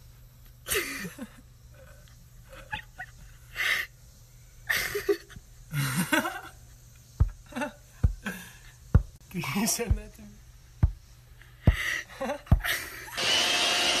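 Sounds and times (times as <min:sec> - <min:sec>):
breathy laughter: 0:00.7 - 0:03.9, 0:04.6 - 0:06.7, 0:07.4 - 0:08.7, 0:11.7 - 0:13.2
dull thumps: 0:07.2 - 0:10.2, 0:10.8 - 0:12.8.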